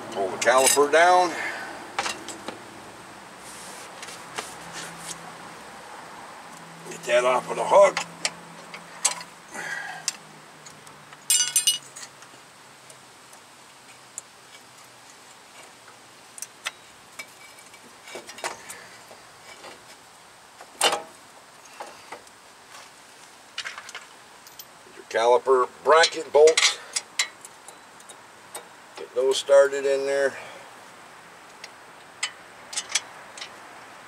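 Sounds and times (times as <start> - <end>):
jangling metallic ring: 11.3 - 11.8
metallic clinks and knocks: 11.3 - 12.1, 32.2 - 33.6.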